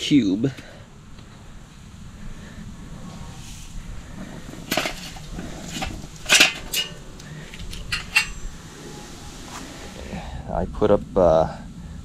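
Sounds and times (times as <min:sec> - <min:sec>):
metal chimney starter clanking: 0:03.8 - 0:08.7.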